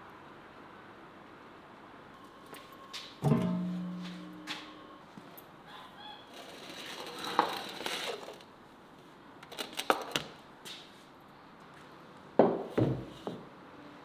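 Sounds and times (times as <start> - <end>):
pan clattering: 3.2 - 4.4
metal pan scraping on brick: 3.2 - 4.5.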